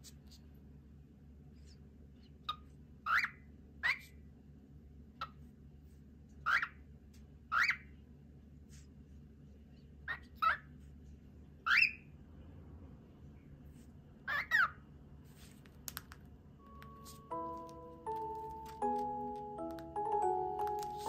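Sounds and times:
cockatiel chirping: 0:02.4 - 0:04.2, 0:06.4 - 0:06.8, 0:07.5 - 0:07.9, 0:11.6 - 0:12.1, 0:14.3 - 0:14.8.

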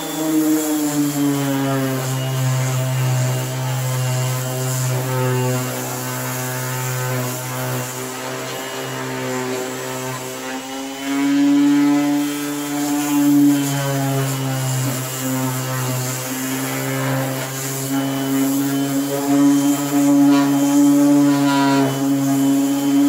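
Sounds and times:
orbital sander on plastic: 0:00.0 - 0:23.0.

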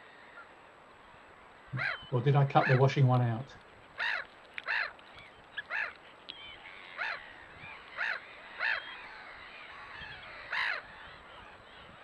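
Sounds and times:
waterbirds whistling and twittering: 0:01.1 - 0:12.0
oystercatchers piping calls: 0:01.7 - 0:03.1, 0:03.8 - 0:12.0.

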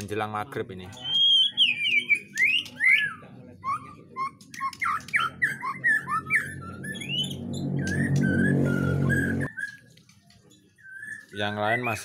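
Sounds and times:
birds whistling and chattering: 0:00.8 - 0:12.0
low droning hum: 0:06.1 - 0:09.5.

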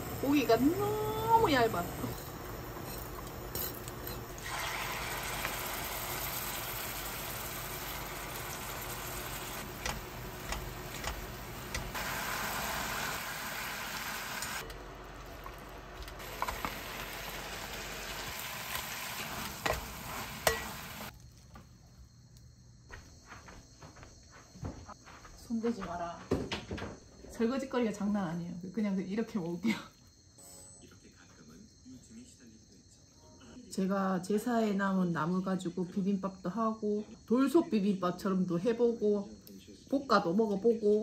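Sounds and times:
food sizzling in a frying pan: 0:00.0 - 0:21.1.

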